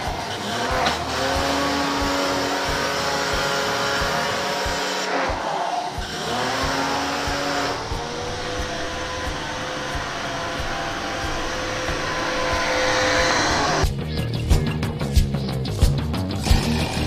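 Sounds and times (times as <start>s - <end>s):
pressure washer running: 0.0s - 5.3s, 6.0s - 13.9s.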